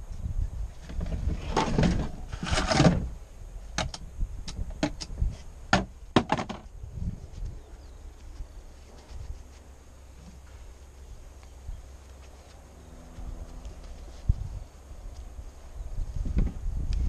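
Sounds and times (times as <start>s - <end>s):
rustling scrapes: 0.8s - 3.1s, 7.0s - 11.1s, 11.9s - 15.7s.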